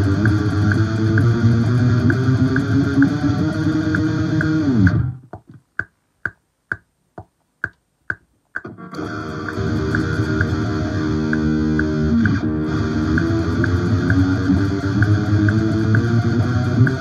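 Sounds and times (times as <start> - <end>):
electric guitar playing: 0.0 - 5.2, 8.6 - 17.0
backing track: 0.0 - 17.0
steady metronome clicks: 0.0 - 17.0.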